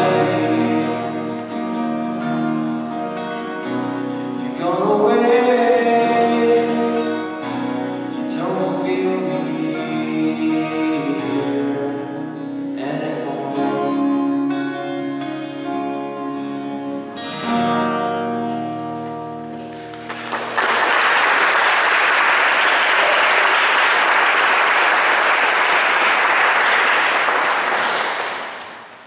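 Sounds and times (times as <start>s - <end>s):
acoustic guitar chords: 0.0s - 20.6s
audience applause: 20.0s - 29.0s.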